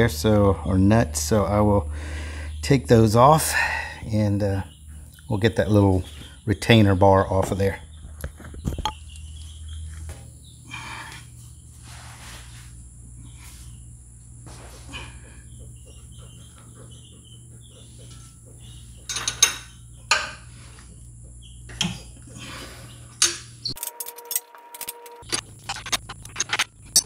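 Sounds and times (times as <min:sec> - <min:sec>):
steady low hum: 0:00.0 - 0:27.0
metal tool clicking and scraping: 0:23.2 - 0:27.0.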